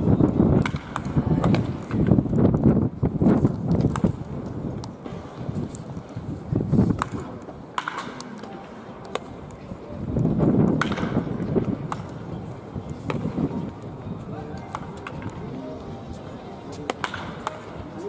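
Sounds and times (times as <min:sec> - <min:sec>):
bats cracking balls: 0:06.9 - 0:09.3, 0:16.8 - 0:17.7.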